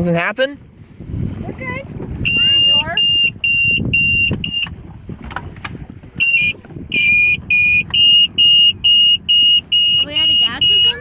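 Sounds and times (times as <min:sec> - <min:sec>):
low engine rumble: 0:00.9 - 0:11.0
high alarm beeping: 0:02.2 - 0:04.7, 0:06.2 - 0:11.0.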